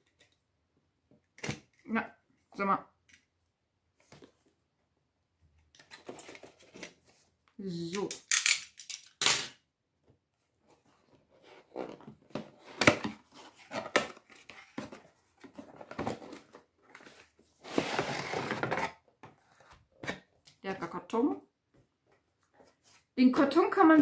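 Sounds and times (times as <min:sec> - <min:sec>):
cardboard box being opened: 0:11.4 - 0:19.7.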